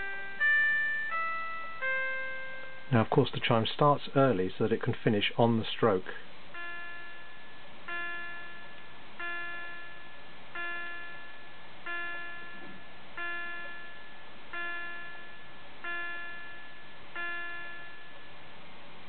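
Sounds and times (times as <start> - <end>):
electronic clock chime bell: 0.0 - 3.1, 6.5 - 18.2.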